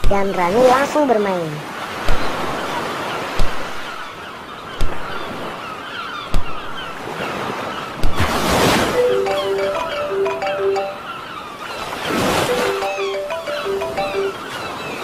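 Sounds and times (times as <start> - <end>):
ocean surf washing on beach: 6.4 - 10.7.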